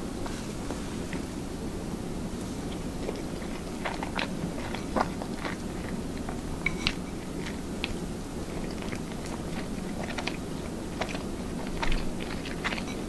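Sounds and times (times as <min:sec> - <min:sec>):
steady low hum: 0:00.0 - 0:13.0
person chewing food: 0:02.6 - 0:13.0.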